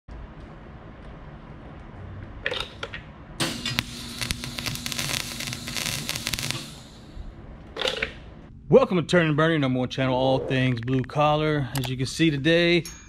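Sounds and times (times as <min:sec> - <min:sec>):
welding crackling hiss: 0:03.4 - 0:07.3.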